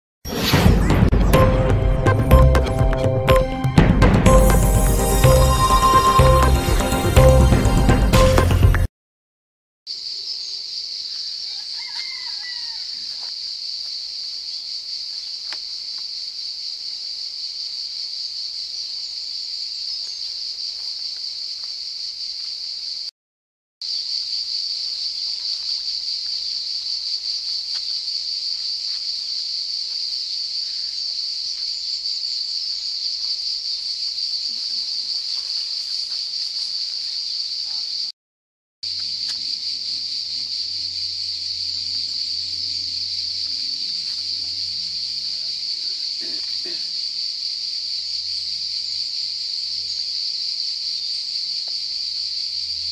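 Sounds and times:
cicadas shrilling: 9.9 - 23.1, 23.8 - 38.1, 38.8 - 52.9
short insect call: 9.9 - 23.1, 23.8 - 38.1, 38.8 - 52.9.

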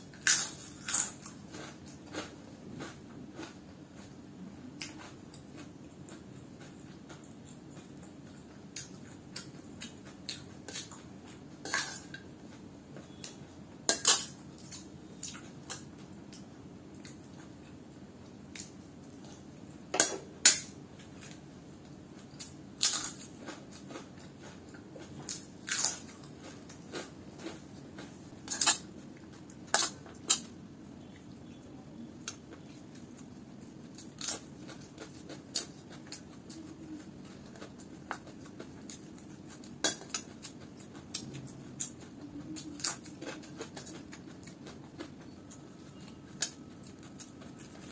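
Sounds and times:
chewing: 21.0 - 47.9.

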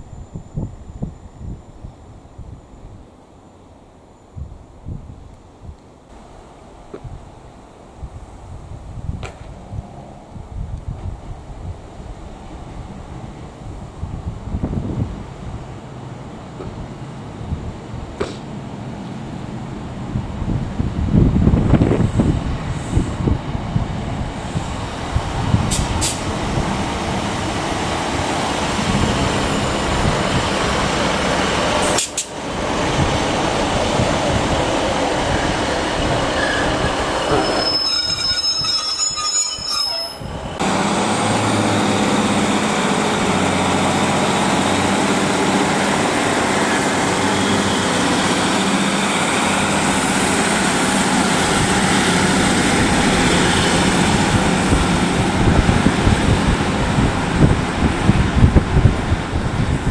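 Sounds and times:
wheels on rail: 0.0 - 59.9
high wheel squeal: 35.2 - 40.6, 46.6 - 49.8
diesel engines humming: 40.1 - 59.9.

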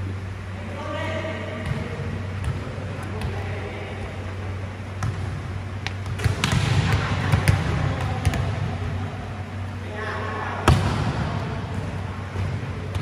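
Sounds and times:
steady low hum: 0.0 - 13.0
volleyballs being hit: 1.5 - 3.8, 4.8 - 9.6, 10.6 - 13.0.

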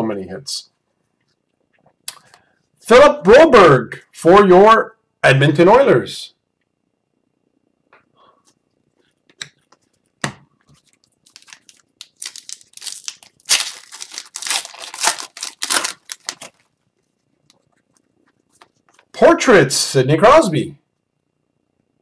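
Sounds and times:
wrapper crinkling and tearing: 10.8 - 16.8.

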